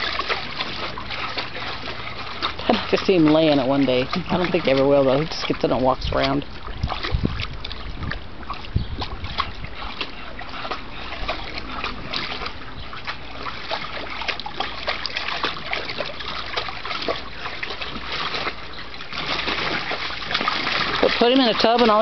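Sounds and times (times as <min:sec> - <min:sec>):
dog splashing in water: 0:00.0 - 0:22.0.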